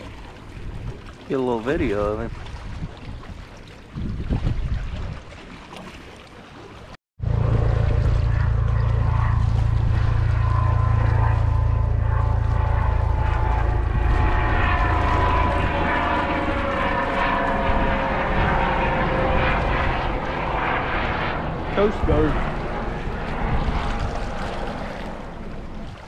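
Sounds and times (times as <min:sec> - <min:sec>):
aircraft engine drone: 0:07.2 - 0:26.0.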